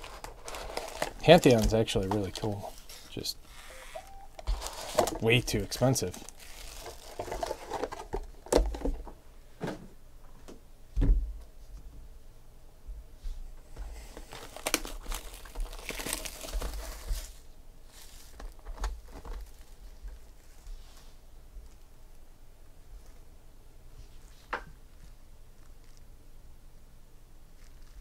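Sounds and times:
wrappers crinkling: 0:00.0 - 0:08.4, 0:13.9 - 0:22.2, 0:27.4 - 0:28.0.

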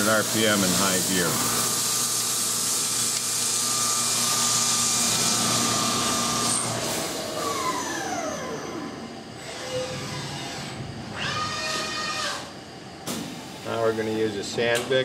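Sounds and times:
high-pressure coolant hiss: 0:00.0 - 0:07.2.

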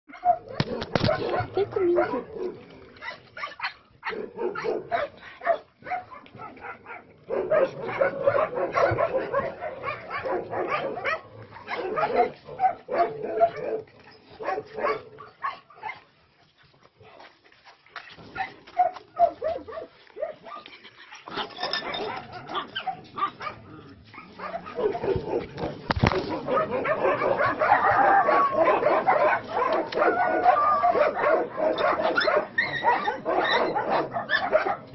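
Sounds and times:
dogs barking and yipping: 0:00.1 - 0:17.2, 0:17.8 - 0:34.9
dogs whining: 0:21.1 - 0:25.4, 0:26.5 - 0:34.6.

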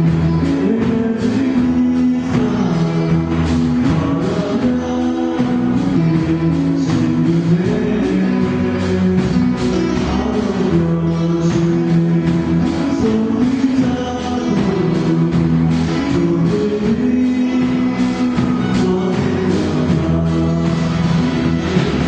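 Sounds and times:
live band with guitars and keyboard: 0:00.0 - 0:22.0
man singing into a microphone: 0:00.0 - 0:22.0.

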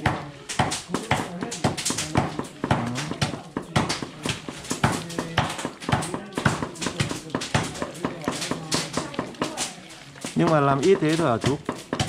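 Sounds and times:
hands slapping wet meat filling: 0:00.0 - 0:12.0.

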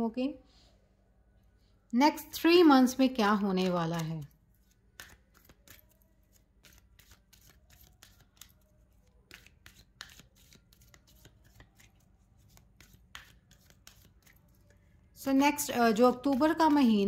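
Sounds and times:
cards being shuffled: 0:03.7 - 0:14.7.

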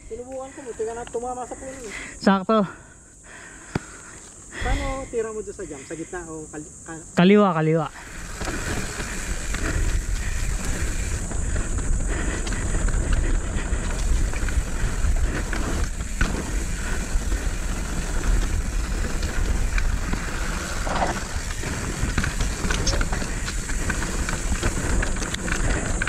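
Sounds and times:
wind noise on microphone: 0:04.5 - 0:05.2, 0:07.9 - 0:26.0
bike rattle: 0:07.9 - 0:26.0
bike tyre rumble: 0:07.9 - 0:26.0.

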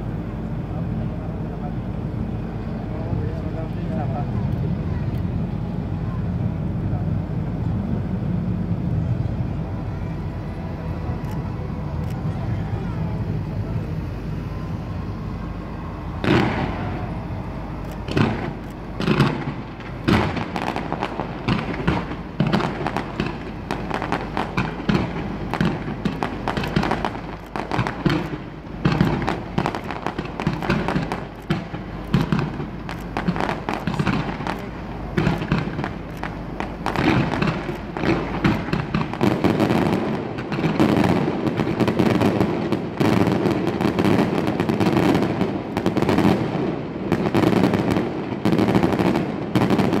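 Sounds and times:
fireworks bangs: 0:15.6 - 0:50.0.

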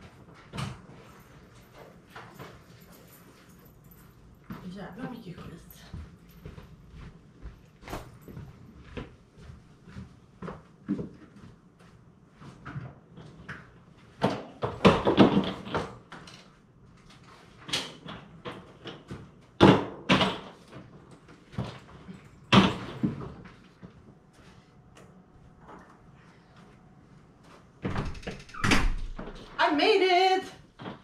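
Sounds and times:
soft footsteps: 0:00.0 - 0:14.2, 0:23.4 - 0:27.9
suitcases clattering and banging: 0:18.5 - 0:23.6.

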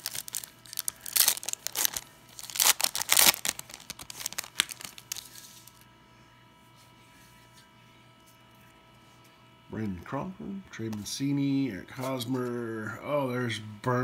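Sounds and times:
foil wrapper tearing and crinkling: 0:00.0 - 0:05.7.

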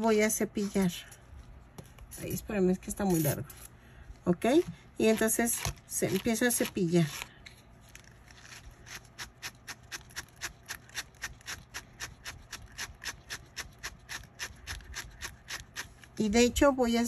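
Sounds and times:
brush scratching over yarn: 0:07.9 - 0:16.3.

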